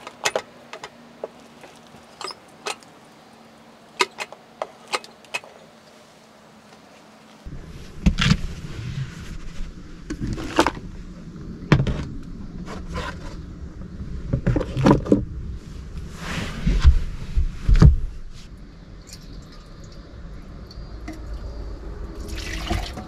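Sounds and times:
knocks bumps and scrapes: 11.6s - 15.4s.

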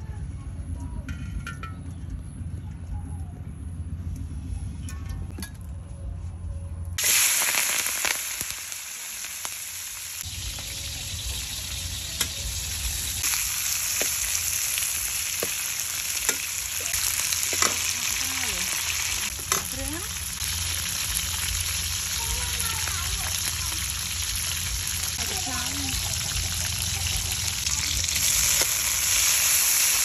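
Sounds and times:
food sizzling in a wok: 7.0s - 30.0s.

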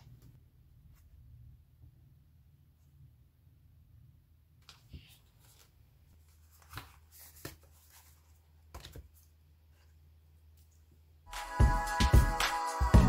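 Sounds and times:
paper rustling: 4.6s - 9.9s.

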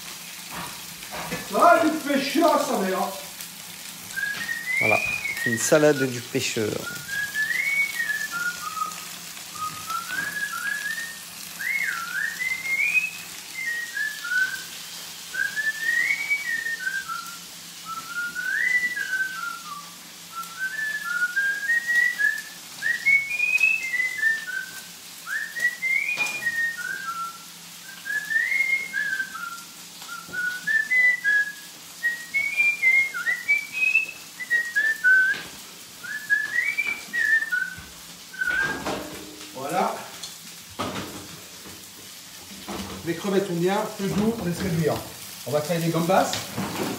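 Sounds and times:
person whistling a tune: 4.1s - 39.0s.

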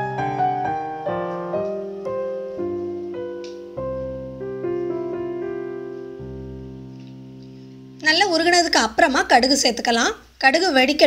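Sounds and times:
slow piano melody: 0.0s - 8.8s.

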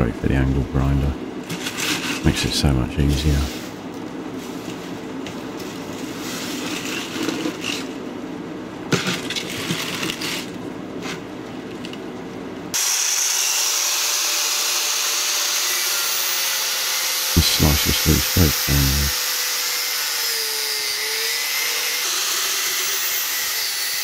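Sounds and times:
angle grinder cutting metal: 12.8s - 24.0s.

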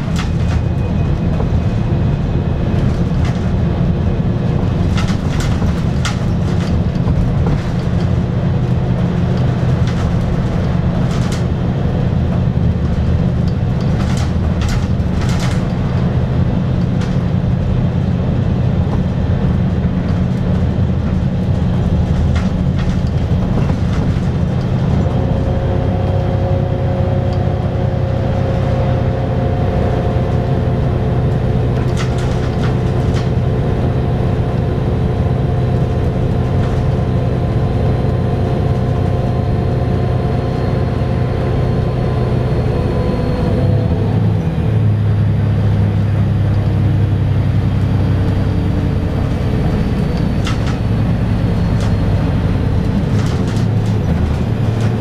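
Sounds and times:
bus engine drone: 0.0s - 55.0s
road rumble: 0.0s - 55.0s
clicks and rattles: 4.8s - 8.2s, 9.3s - 11.5s, 12.3s - 16.2s, 20.0s - 25.2s, 31.8s - 33.4s, 50.2s - 50.9s, 52.8s - 55.0s.

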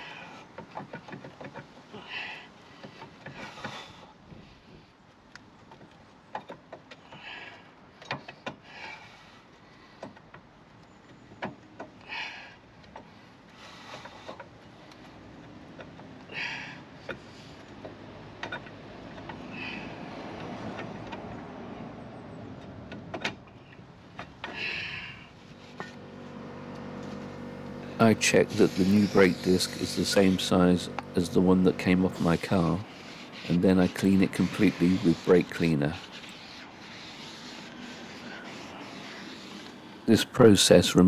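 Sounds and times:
metallic scraping: 27.0s - 40.2s.

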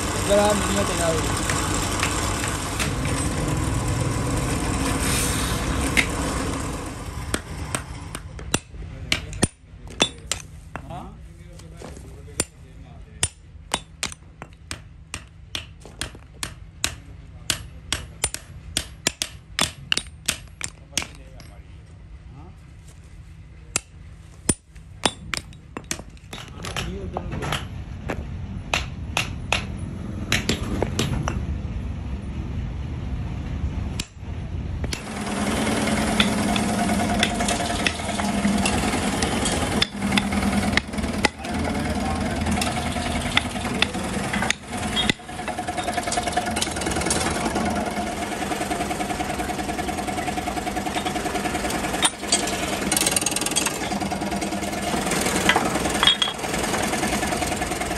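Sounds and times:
machine humming and rattling: 0.0s - 22.2s, 23.0s - 57.9s
hammer striking punch on steel: 13.2s - 21.2s.

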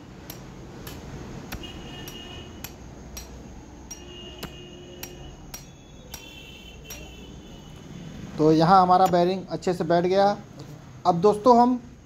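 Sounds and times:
hammer tapping on steel: 0.2s - 7.3s, 9.0s - 9.4s.

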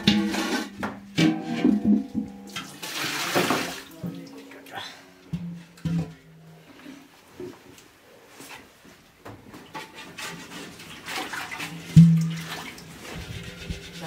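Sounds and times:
metal pot knocked ringing: 0.0s - 2.7s, 12.0s - 12.4s
liquid pouring and splashing: 2.2s - 4.6s, 10.8s - 14.0s.

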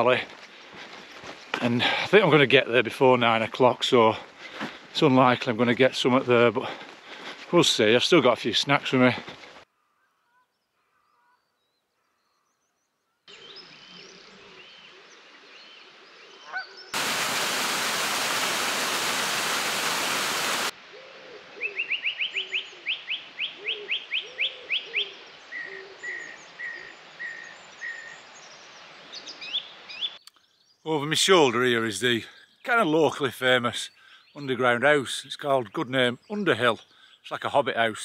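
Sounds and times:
birds calling: 0.0s - 38.0s
loud steady hiss: 17.0s - 20.7s.

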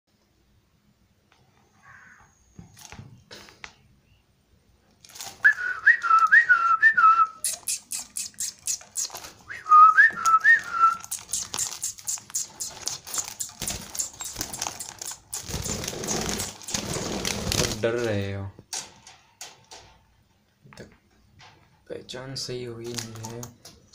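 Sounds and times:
person whistling: 5.5s - 8.5s, 9.5s - 11.4s
budgies chirping: 11.0s - 17.0s.

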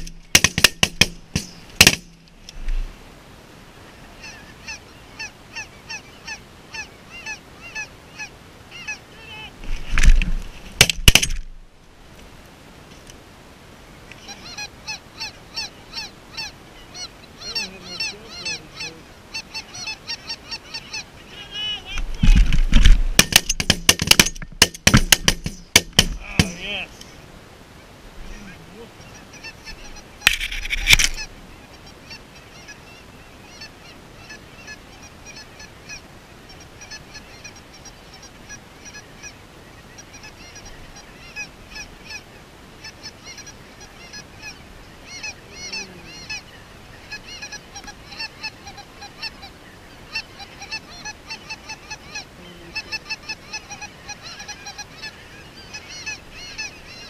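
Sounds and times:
sharp loud knocks: 0.0s - 2.2s, 22.2s - 26.6s
geese honking: 3.9s - 9.6s, 14.2s - 22.4s, 28.2s - 57.0s.

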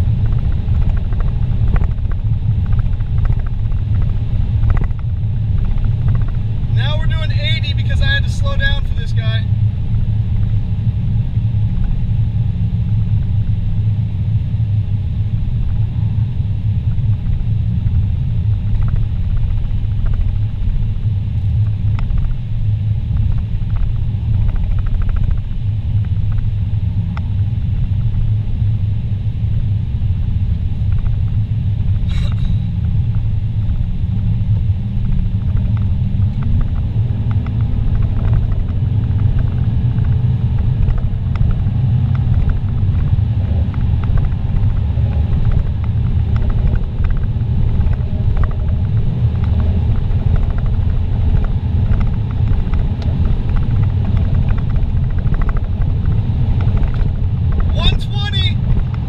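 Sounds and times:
car engine and tyres rumbling: 0.0s - 59.0s.

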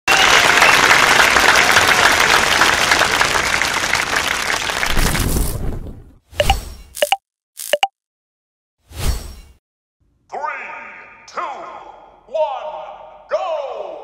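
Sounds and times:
crowd applauding: 0.1s - 5.0s.

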